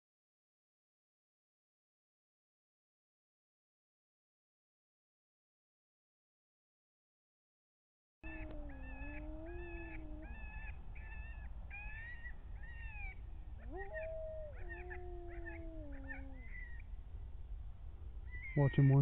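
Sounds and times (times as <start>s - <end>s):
coyotes howling: 8.2s - 17.1s, 18.1s - 19.0s
coyotes yipping: 8.2s - 17.1s, 18.0s - 19.0s
low steady rumble: 8.6s - 19.0s.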